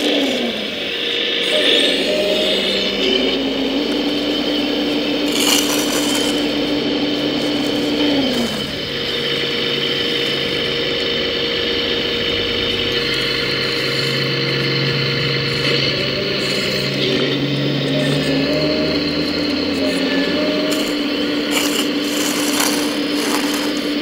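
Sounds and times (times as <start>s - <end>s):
electric motors whining: 0.0s - 24.0s.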